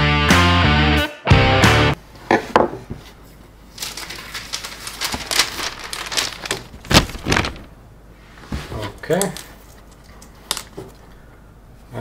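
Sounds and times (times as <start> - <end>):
paper crinkling and rustling: 3.2 - 7.8
tape peeling: 3.7 - 7.8.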